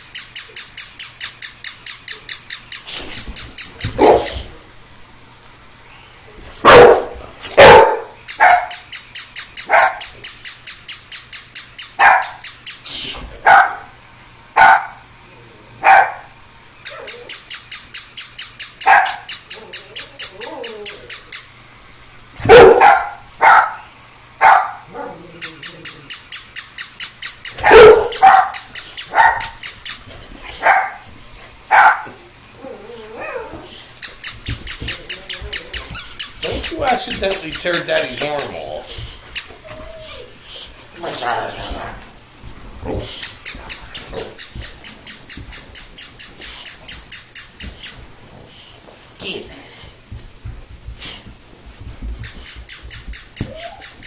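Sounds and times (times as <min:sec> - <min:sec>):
dog barking: 0:04.0 - 0:04.4, 0:06.6 - 0:08.8, 0:09.7 - 0:10.0, 0:12.0 - 0:12.4, 0:13.4 - 0:13.9, 0:14.6 - 0:15.0, 0:15.8 - 0:16.3, 0:18.8 - 0:19.3, 0:22.4 - 0:23.8, 0:24.4 - 0:25.2, 0:27.6 - 0:29.6, 0:30.6 - 0:31.0, 0:31.7 - 0:32.2
toy puppy high-pitched yaps: 0:07.6 - 0:12.8, 0:16.8 - 0:21.4, 0:26.8 - 0:29.8, 0:52.3 - 0:54.0.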